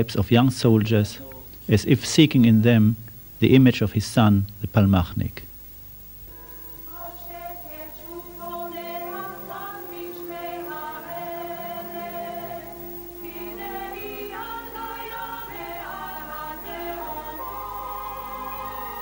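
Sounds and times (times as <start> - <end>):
choir singing long notes: 6.8 - 19.0.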